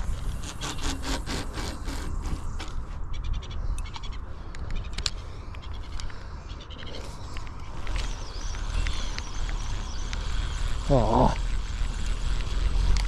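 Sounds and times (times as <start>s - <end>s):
fishing line ticking off reel: 6.7s - 13.0s.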